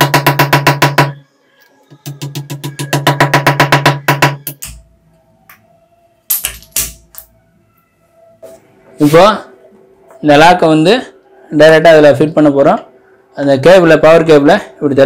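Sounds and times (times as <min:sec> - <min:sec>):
hammer tapping wooden plugs: 0:00.0 - 0:01.2, 0:01.9 - 0:04.8.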